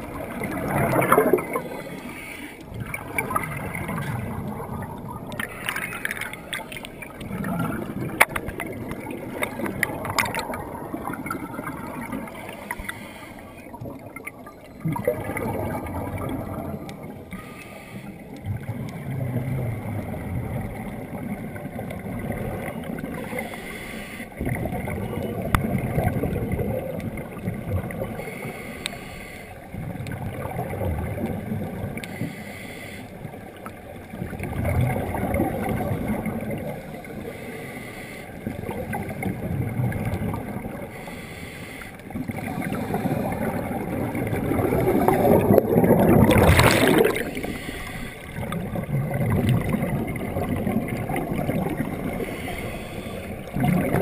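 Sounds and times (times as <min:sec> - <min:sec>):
muffled underwater rushing water: 0:00.0 - 0:54.0
scuba exhaust bubbles gurgling: 0:00.0 - 0:54.0.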